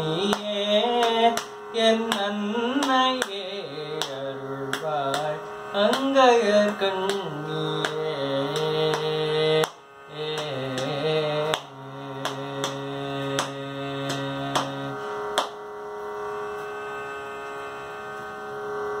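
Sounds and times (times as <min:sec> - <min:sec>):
man singing: 0:00.0 - 0:15.1
steady drone: 0:00.0 - 0:19.0
sharp taps keeping time: 0:00.2 - 0:15.6.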